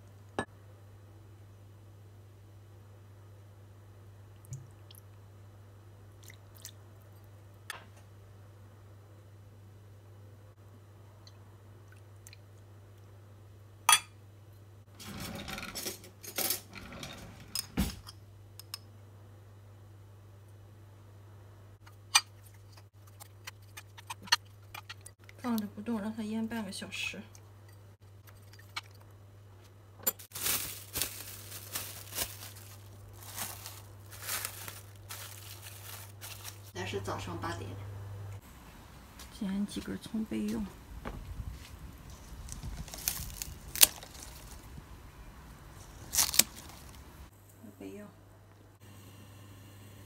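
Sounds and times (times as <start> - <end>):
clattering and handling noise: 28.0 - 36.8, 41.0 - 44.8, 45.8 - 47.2
cling film crinkling: 30.3 - 36.8, 42.0 - 44.8, 45.7 - 47.3.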